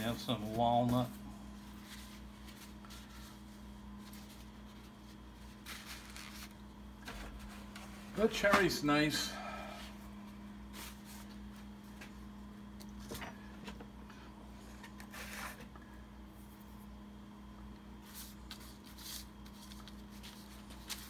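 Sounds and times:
paper towel rustling: 0.0 - 8.9, 10.0 - 12.3, 18.0 - 21.0
steady low hum: 0.0 - 21.0.

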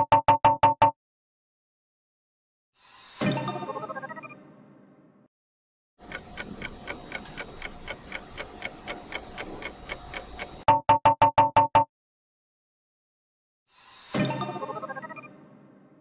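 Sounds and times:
clock-like timer ticking: 6.0 - 10.7.

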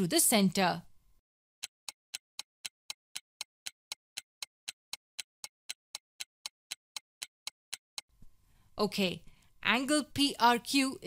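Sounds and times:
clock ticking: 1.6 - 8.2.

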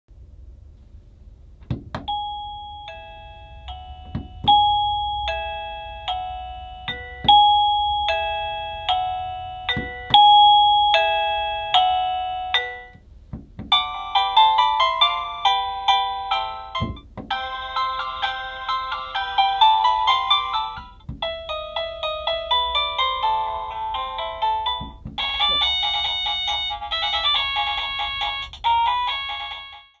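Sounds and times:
electronic chime melody: 2.1 - 13.0, 22.6 - 29.8.

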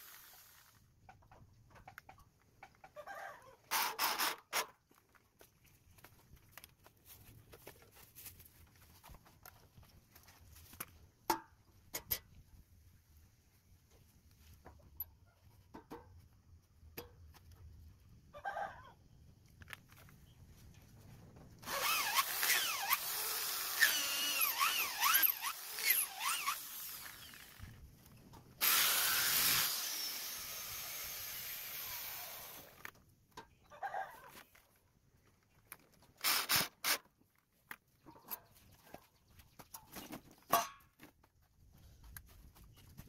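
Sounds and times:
electric drill boring into wood: 0.0 - 0.7, 21.6 - 27.7, 28.6 - 32.8, 36.2 - 37.0.

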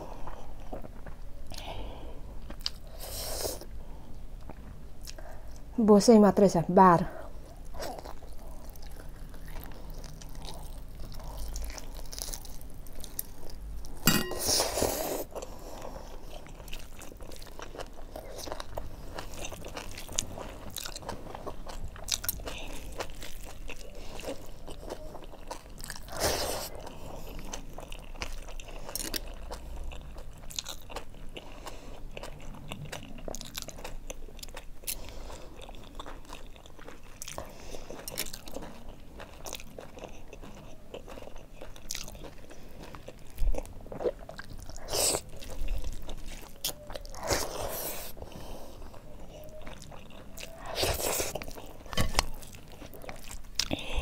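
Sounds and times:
wet chewing and crunching: 2.4 - 3.7, 7.4 - 54.0.

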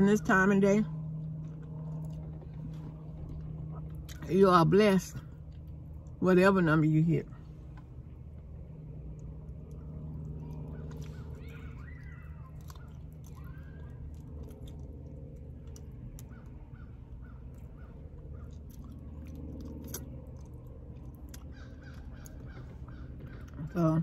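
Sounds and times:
steady low hum: 0.0 - 24.0
person chewing and biting: 9.0 - 23.6
wet mouth clicks: 18.6 - 22.4.

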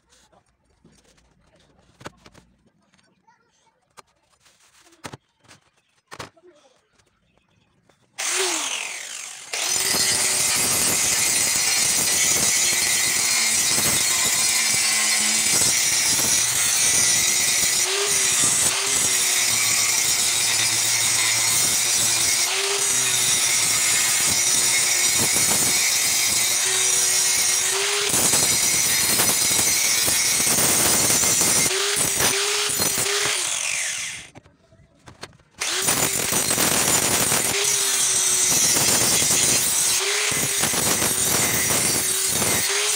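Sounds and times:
angle grinder grinding steel: 8.2 - 34.4, 35.6 - 42.9.

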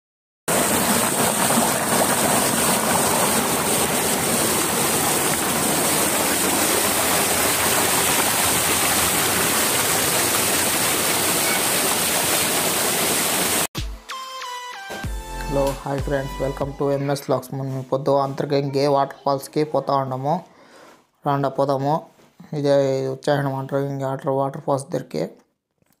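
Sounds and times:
waterfall pouring onto rock: 0.5 - 13.7.

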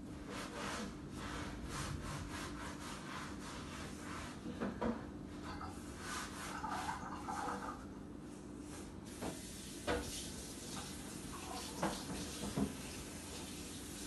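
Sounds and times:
rubbing strokes: 0.2 - 4.4, 6.0 - 7.5.

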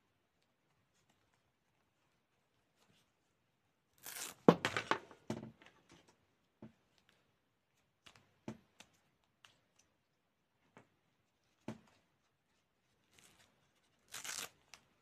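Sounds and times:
hook-and-loop fastener ripping: 3.9 - 4.5, 13.0 - 15.0.

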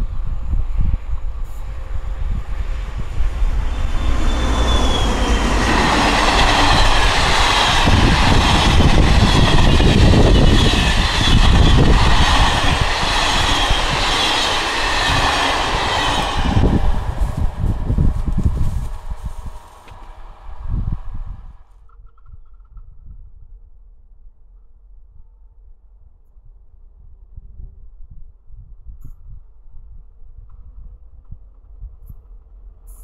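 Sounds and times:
train wheels clattering on rails: 3.0 - 21.2
high wheel squeal: 3.0 - 21.3.

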